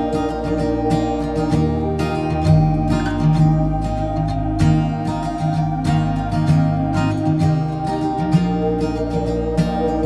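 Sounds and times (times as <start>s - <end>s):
acoustic guitar music: 0.0s - 10.0s.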